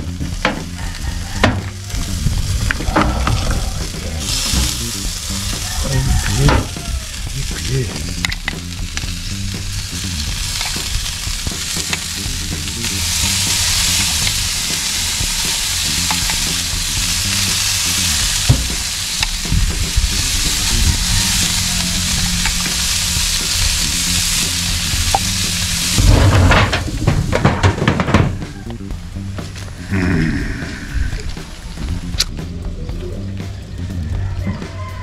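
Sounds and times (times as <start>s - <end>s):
glaze sizzling on hot meat: 0.0s - 26.2s.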